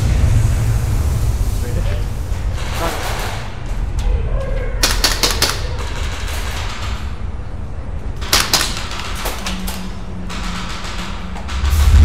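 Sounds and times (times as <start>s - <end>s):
steady low rumble: 0.0s - 12.0s
airsoft guns firing bursts: 4.8s - 7.1s, 8.2s - 11.8s.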